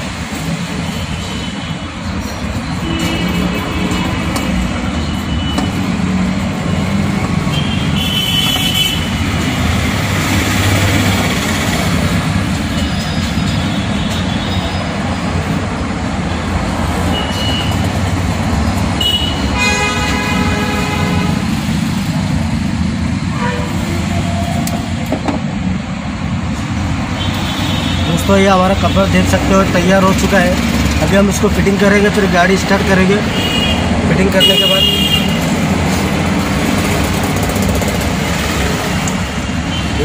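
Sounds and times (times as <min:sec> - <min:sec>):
traffic rumble: 0:00.0 - 0:40.0
car horns tooting: 0:02.6 - 0:06.0, 0:07.3 - 0:09.4, 0:17.1 - 0:18.0, 0:18.9 - 0:21.6, 0:23.3 - 0:24.3, 0:32.6 - 0:35.7.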